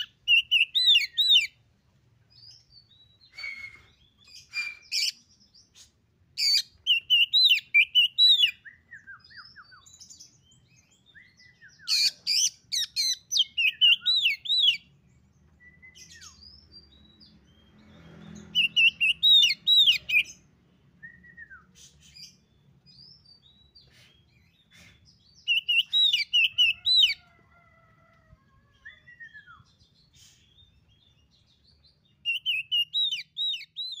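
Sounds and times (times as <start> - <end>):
bird singing looping whistles: 0.0 - 1.6, 6.4 - 10.0, 25.4 - 27.2, 32.3 - 34.0.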